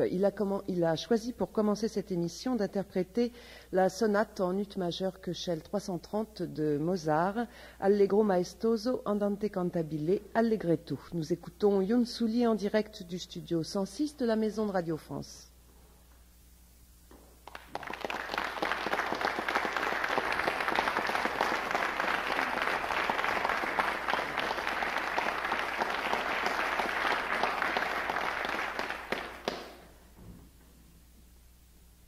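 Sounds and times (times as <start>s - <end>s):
audience applauding: 17.4s - 29.9s.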